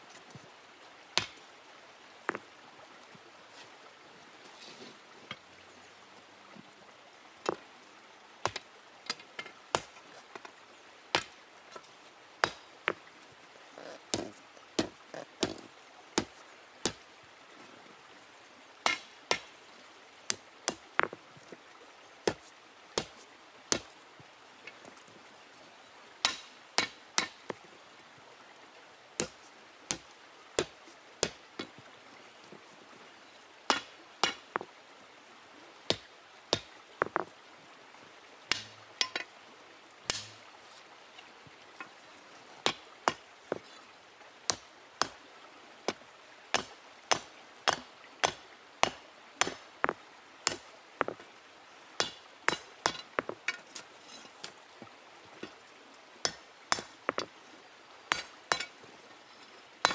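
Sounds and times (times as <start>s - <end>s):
hammer striking iron bar: 26.2s - 27.4s, 33.7s - 34.4s, 58.1s - 58.7s.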